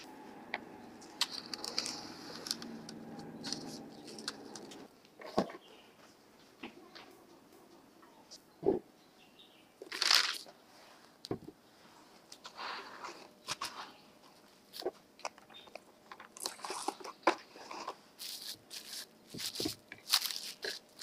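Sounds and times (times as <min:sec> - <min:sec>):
cling film crinkling: 0:01.0 - 0:04.8, 0:09.8 - 0:10.5, 0:17.7 - 0:21.0.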